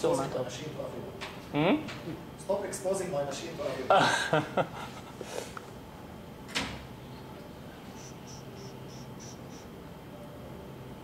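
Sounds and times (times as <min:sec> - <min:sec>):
low room hum: 0:00.0 - 0:11.0
small high ticks: 0:07.9 - 0:09.7.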